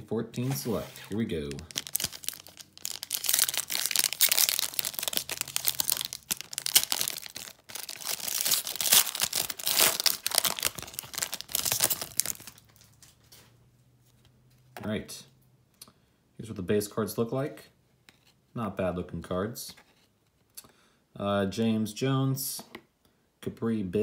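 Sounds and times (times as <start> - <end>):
foil wrapper crinkling and tearing: 1.5 - 13.0.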